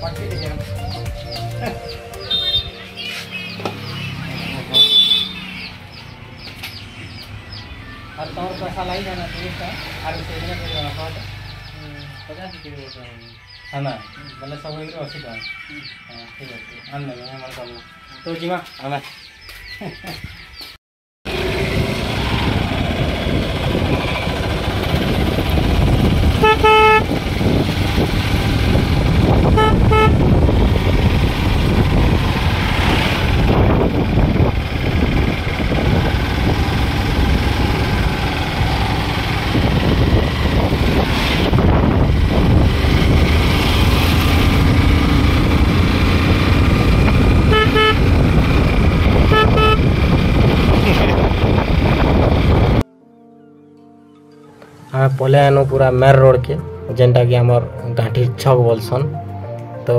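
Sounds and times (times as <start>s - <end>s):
motorcycle engine: 0.0s - 12.8s, 21.3s - 52.8s
horn beeps: 1.9s - 5.7s, 26.4s - 27.1s, 29.4s - 30.4s, 47.4s - 48.2s, 49.1s - 50.0s
wind rushing: 21.4s - 52.8s.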